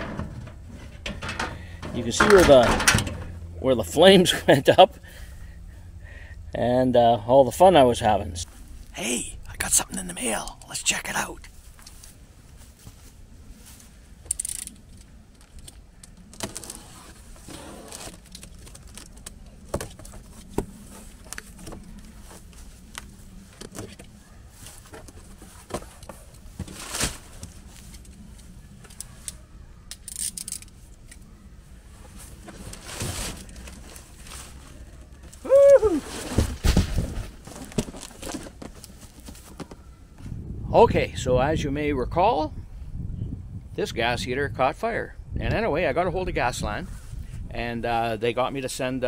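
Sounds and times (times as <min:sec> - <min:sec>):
handling clicks and knocks: 0:00.0 - 0:03.5
paper packing rustling and tearing: 0:16.4 - 0:23.0, 0:24.6 - 0:28.0, 0:32.2 - 0:35.1, 0:35.7 - 0:39.6
tape and flaps pulled: 0:35.4 - 0:39.3.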